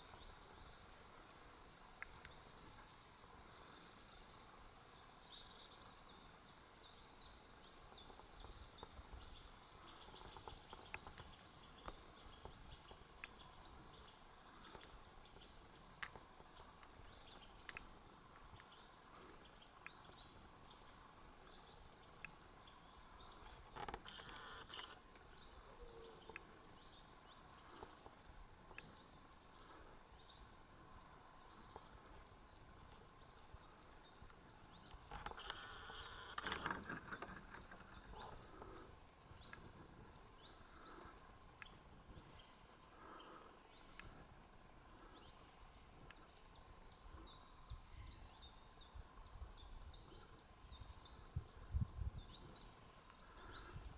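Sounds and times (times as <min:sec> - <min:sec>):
small chirps: 0:09.8 - 0:26.8, 0:30.9 - 0:41.9.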